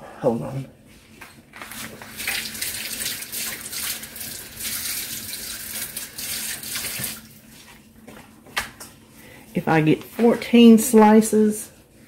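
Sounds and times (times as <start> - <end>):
tap water splashing into sink: 2.0 - 7.3.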